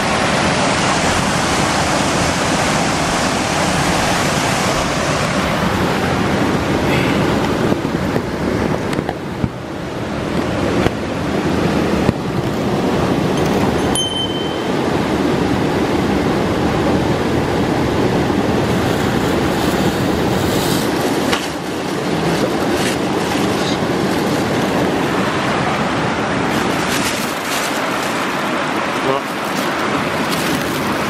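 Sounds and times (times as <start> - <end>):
mountain stream rushing: 0.0 - 31.0
handling knocks and rustles: 20.5 - 24.9, 26.5 - 28.6, 29.2 - 31.0.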